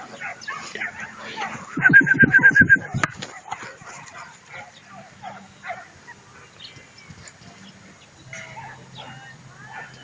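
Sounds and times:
puppies yipping and whimpering: 0.1s - 6.2s.

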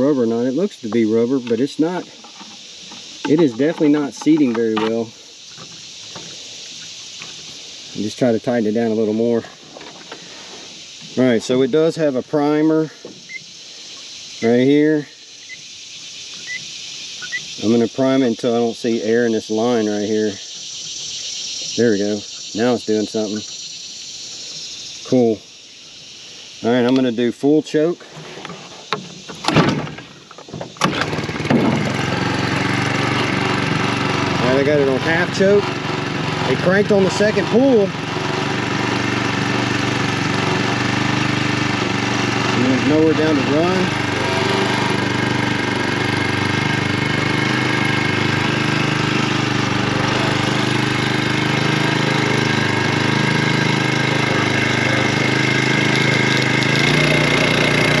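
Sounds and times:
outboard motor running: 0.0s - 13.8s, 16.3s - 25.3s, 28.5s - 58.0s
recoil starter rope pull: 0.9s - 6.4s, 29.3s - 58.0s.

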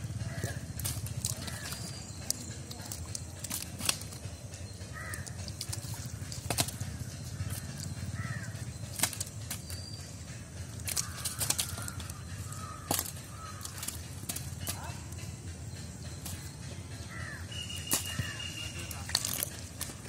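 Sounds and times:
wet slaps and squelching in mud: 0.3s - 4.2s, 5.1s - 7.9s, 8.9s - 9.8s, 10.8s - 12.2s, 12.8s - 14.8s, 17.8s - 18.3s, 19.0s - 20.0s.

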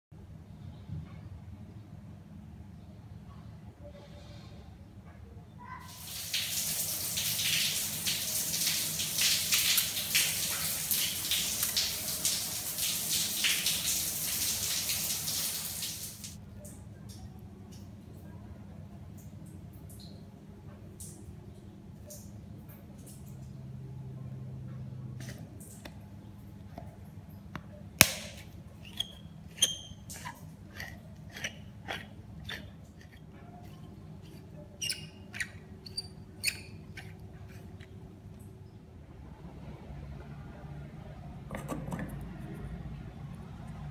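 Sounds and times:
shower water hissing: 5.9s - 16.4s
water splashing on tiled floor: 5.9s - 16.4s, 28.0s - 38.5s
shower head squeaking and clicking: 28.3s - 38.0s.

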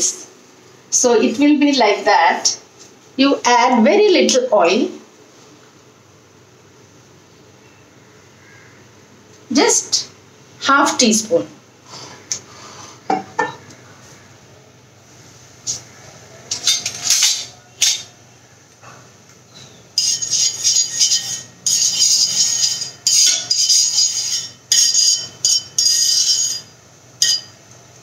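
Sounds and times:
metal spoon scraping a pan: 16.5s - 18.1s, 20.0s - 27.5s
utensils clinking: 16.5s - 18.2s, 19.5s - 27.6s.

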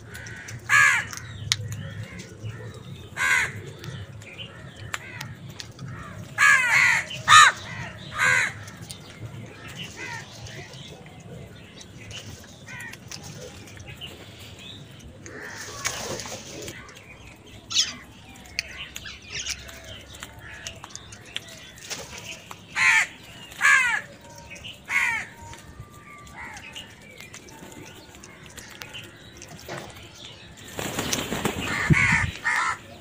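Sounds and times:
crows cawing: 0.1s - 1.4s, 2.0s - 3.7s, 4.5s - 8.8s, 9.9s - 10.3s, 12.7s - 13.0s, 15.3s - 16.0s, 22.8s - 24.1s, 24.9s - 25.4s, 31.6s - 32.9s.

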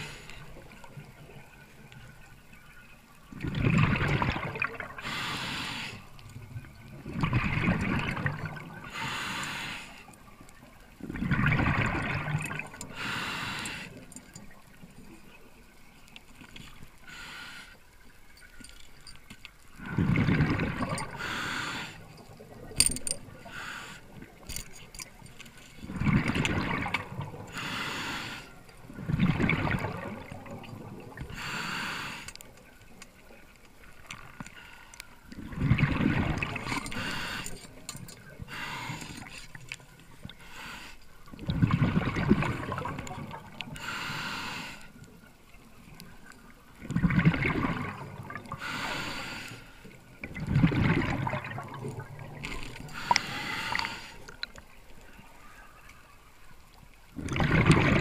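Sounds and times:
regulator inhale hiss: 0.0s - 0.6s, 5.0s - 6.1s, 8.9s - 10.1s, 12.9s - 14.0s, 17.0s - 17.8s, 21.1s - 22.1s, 23.4s - 24.2s, 27.5s - 28.6s, 31.3s - 32.5s, 36.9s - 37.8s, 38.4s - 39.5s, 40.4s - 41.2s, 43.7s - 45.0s, 48.5s - 50.0s, 52.9s - 54.4s
exhaled bubbles gushing: 3.3s - 5.2s, 6.2s - 9.0s, 10.9s - 13.0s, 19.7s - 21.4s, 25.8s - 27.7s, 28.8s - 31.5s, 35.3s - 38.6s, 41.3s - 43.8s, 46.7s - 48.7s, 50.1s - 54.6s, 57.1s - 58.0s.

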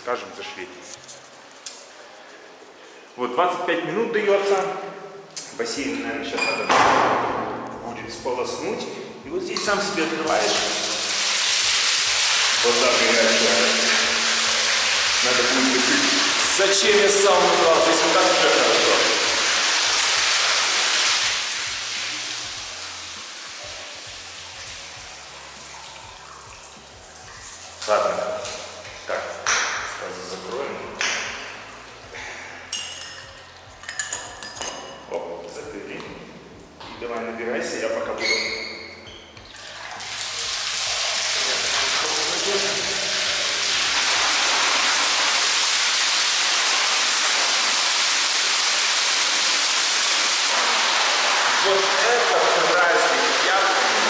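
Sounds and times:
water rushing into bath: 9.5s - 32.1s, 39.5s - 54.0s.

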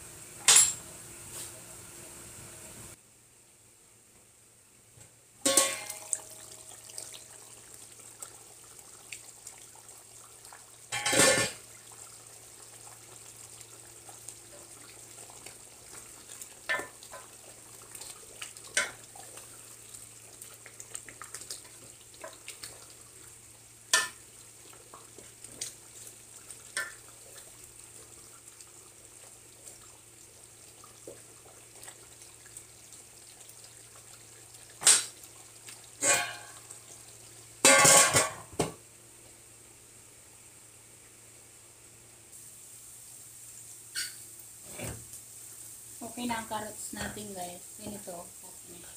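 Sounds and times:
metal pot lid clattering: 5.4s - 6.0s, 10.9s - 11.6s, 37.6s - 38.5s
pot bubbling: 5.4s - 39.5s.

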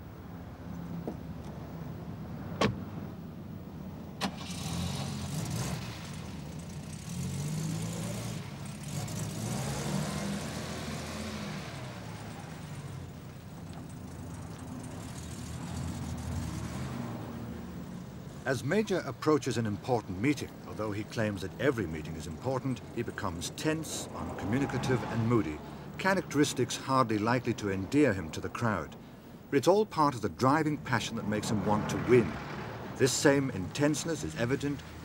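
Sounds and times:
car door shutting thud: 2.6s - 2.8s.

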